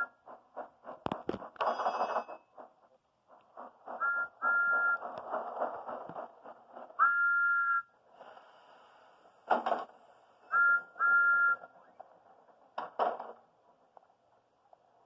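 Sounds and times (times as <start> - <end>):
thud: 9.5 - 9.9, 12.8 - 13.4.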